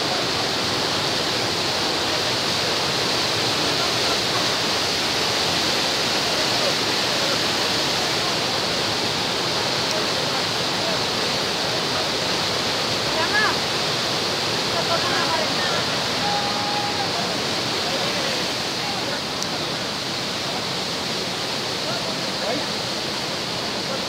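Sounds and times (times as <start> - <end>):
waterfall rushing over rocks: 0.0 - 24.0.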